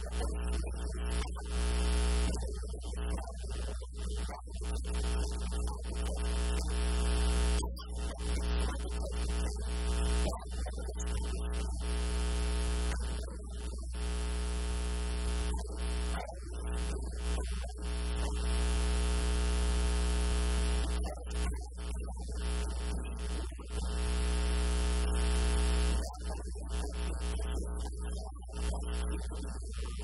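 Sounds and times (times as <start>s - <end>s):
electrical mains hum: 4.7s - 21.5s, 22.2s - 27.8s.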